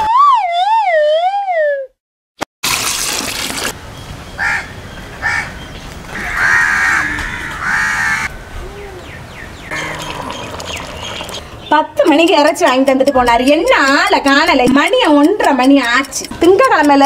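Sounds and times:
crow cawing: 4.4s - 5.5s, 6.1s - 8.8s.

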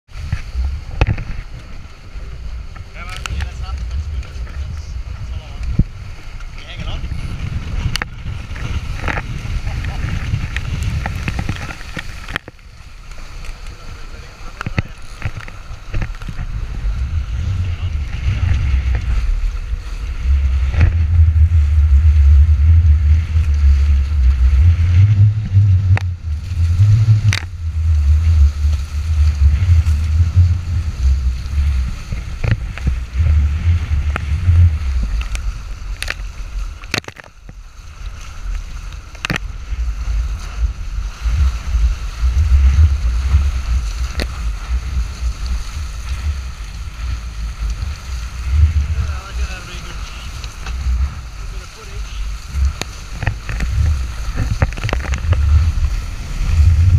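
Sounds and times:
water splashing along hulls: 0.0s - 56.9s
wind buffeting microphone: 0.1s - 56.9s
sharp ticks and knocks: 25.1s - 30.6s, 34.1s - 37.6s, 39.0s - 39.5s, 52.6s - 55.5s.

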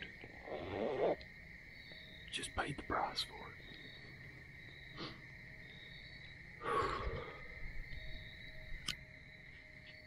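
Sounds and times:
crickets trilling: 0.0s - 10.0s
person sighing: 6.6s - 7.6s.

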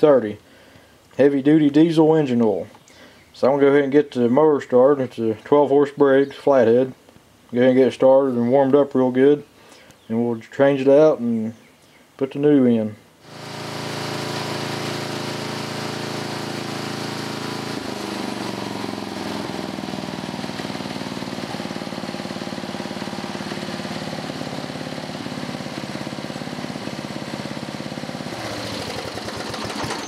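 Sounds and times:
mower engine running: 13.2s - 30.0s.

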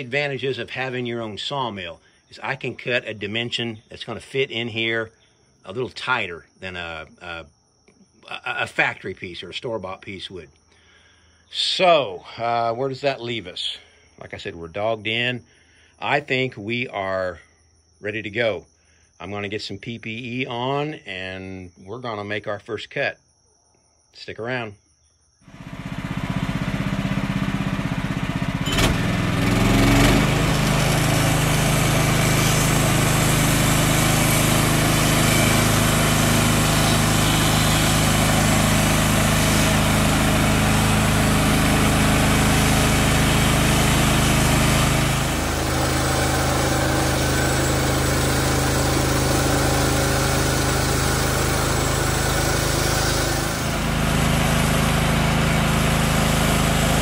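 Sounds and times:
small gas engine running: 25.5s - 57.0s
band blade cutting wood: 28.8s - 41.2s, 43.8s - 54.2s.

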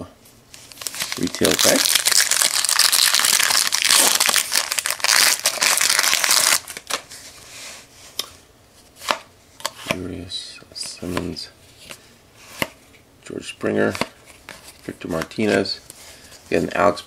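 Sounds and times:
foil wrapper crinkling: 0.7s - 7.0s.

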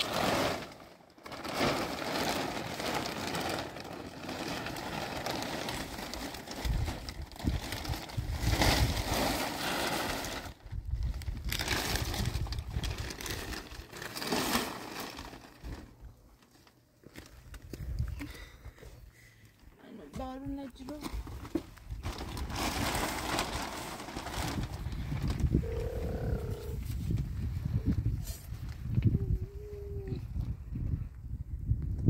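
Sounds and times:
plastic sheet crinkling: 0.0s - 17.4s, 20.7s - 26.4s.

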